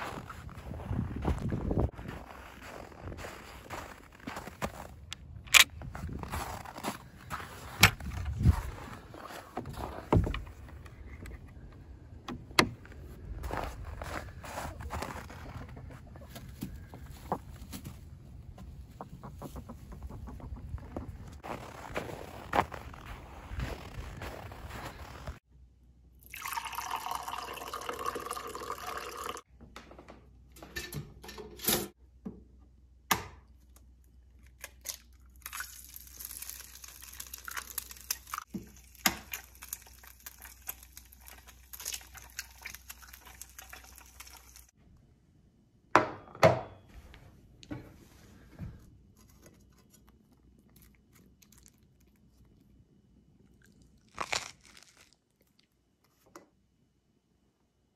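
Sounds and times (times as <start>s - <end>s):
coffee pouring into a mug: 26.2s - 29.4s
toast crunching: 34.4s - 44.7s, 49.3s - 52.8s, 53.4s - 55.8s
egg cracking: 34.5s - 44.8s.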